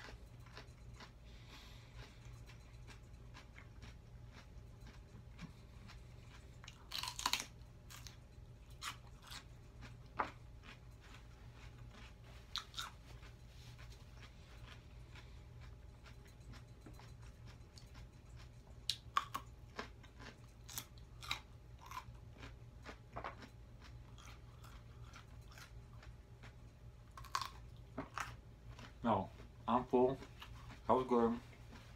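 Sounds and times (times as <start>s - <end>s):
faint low hum: 0.0s - 31.9s
crunching raw vegetables: 3.3s - 13.4s, 18.8s - 31.9s.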